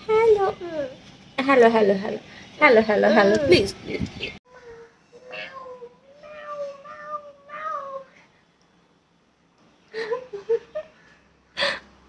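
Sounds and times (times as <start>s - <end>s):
toddler vocalising: 4.6s - 8.1s.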